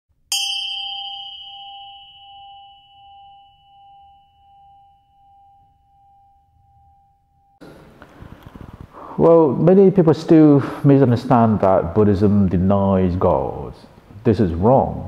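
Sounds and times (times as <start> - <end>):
singing bowl ringing: 0.3 - 7.6.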